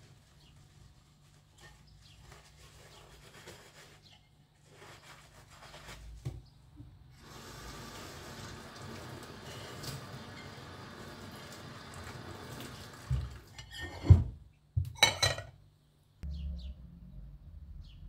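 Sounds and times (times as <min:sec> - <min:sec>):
sponge rubbing a plate: 0:00.2 - 0:06.1
tap water running into sink: 0:07.2 - 0:13.6
dishes clinking: 0:15.0 - 0:15.6.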